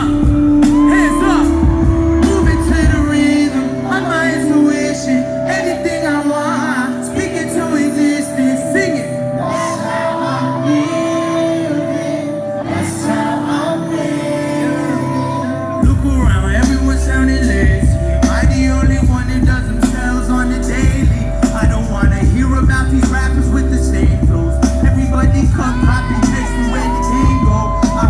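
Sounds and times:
deep bass: 0.0 - 9.5, 15.6 - 28.0
live hip hop music: 0.0 - 28.0
person singing: 0.0 - 28.0
synth chords: 0.0 - 28.0.

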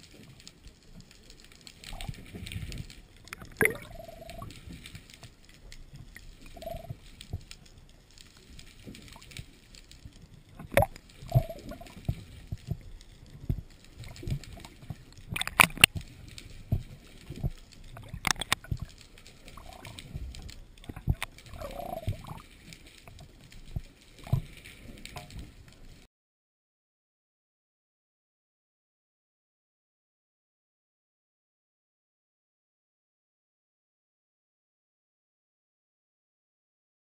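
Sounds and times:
underwater gurgles: 0.0 - 26.0
underwater knocks and clicks: 0.0 - 26.0.

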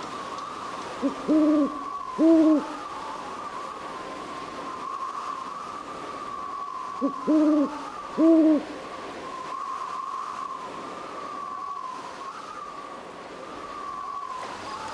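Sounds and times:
owl hooting: 1.0 - 3.2, 6.7 - 8.8.

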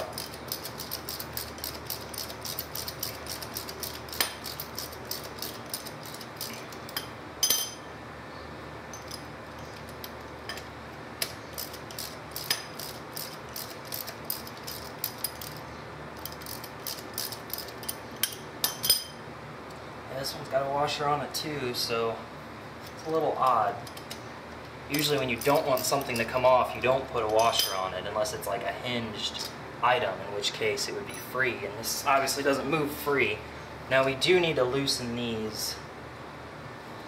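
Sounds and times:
hand ratchet clicking: 0.0 - 7.0, 11.2 - 15.6, 16.2 - 18.4
metal clink: 1.4 - 7.9, 16.2 - 19.2.

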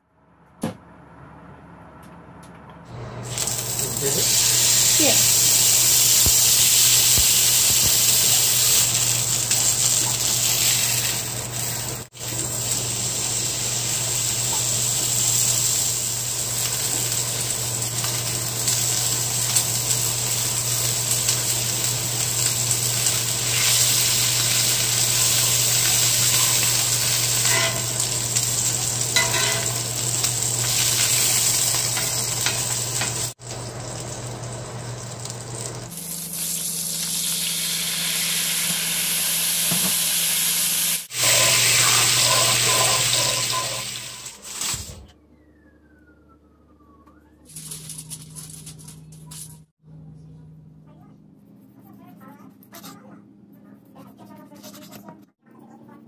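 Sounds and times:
steak sizzling in skillet: 3.2 - 44.8
low hum: 45.1 - 51.8.

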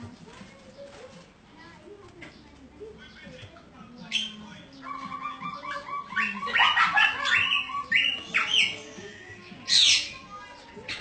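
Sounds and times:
bird chirping: 2.3 - 11.0.

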